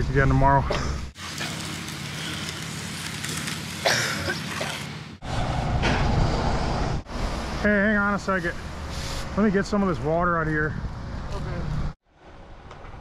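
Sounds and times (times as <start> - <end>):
outdoor noise hiss: 1.2 - 5.2.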